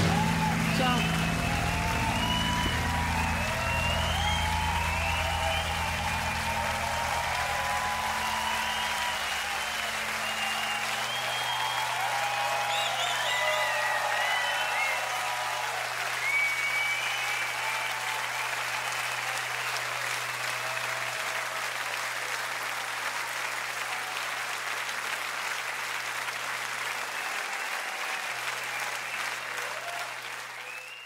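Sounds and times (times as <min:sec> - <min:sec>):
concert audience applauding and cheering: 0:00.0 - 0:31.0.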